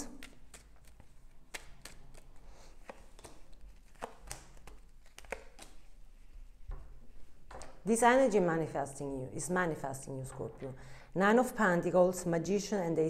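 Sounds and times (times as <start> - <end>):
cards clicking and tapping: 0.2 - 5.9.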